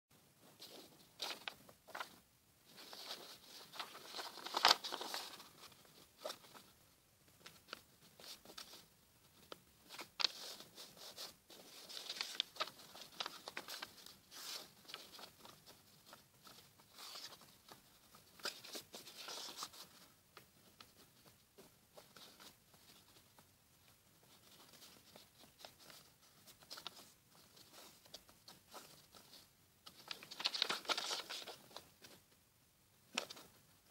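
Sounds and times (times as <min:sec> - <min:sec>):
paper rustling and crinkling: 0:00.4 - 0:06.7, 0:07.4 - 0:32.2, 0:33.1 - 0:33.9
sharp paper clicks: 0:09.4 - 0:21.0, 0:24.5 - 0:32.2.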